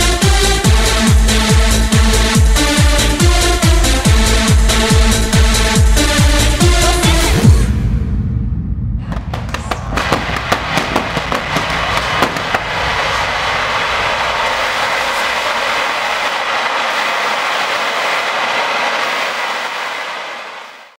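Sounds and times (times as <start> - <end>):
jet cannons hissing: 9.5 - 20.9.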